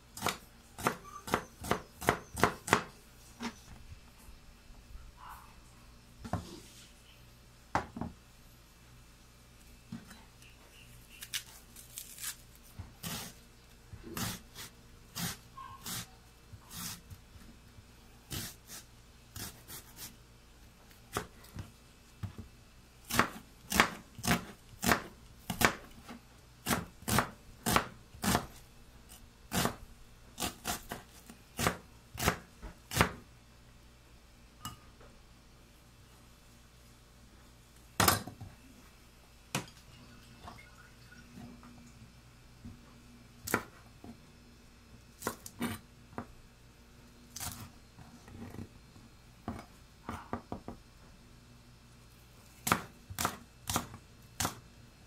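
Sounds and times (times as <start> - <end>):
knife chopping onion on board: 0.2 - 2.9, 14.1 - 16.1, 16.7 - 17.1, 18.3 - 18.8, 19.4 - 20.1, 23.1 - 28.6, 29.5 - 29.8, 30.4 - 33.2, 43.4 - 43.7, 45.2 - 46.3, 52.6 - 54.6.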